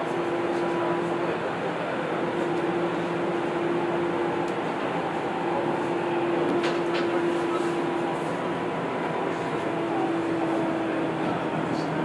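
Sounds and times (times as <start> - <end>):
train interior running noise: 0.0 - 12.0.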